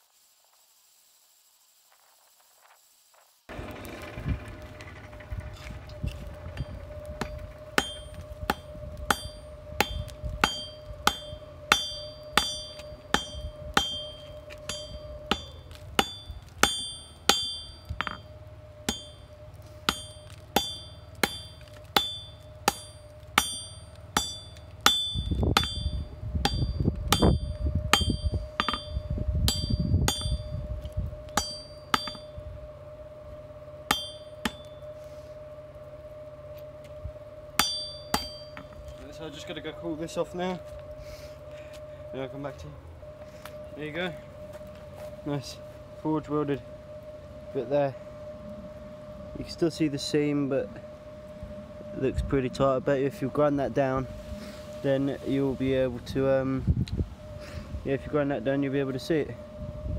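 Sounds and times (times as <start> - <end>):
hammer striking steel on anvil: 6.6 - 30.5, 31.4 - 32.3, 33.9 - 34.8, 37.6 - 38.8.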